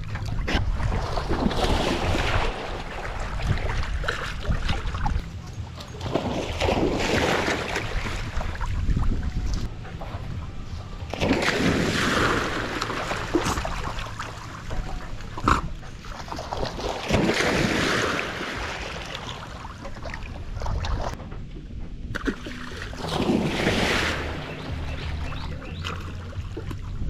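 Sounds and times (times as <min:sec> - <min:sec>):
dogs splashing through water: 0:00.0 - 0:21.2
water sloshing: 0:00.0 - 0:27.0.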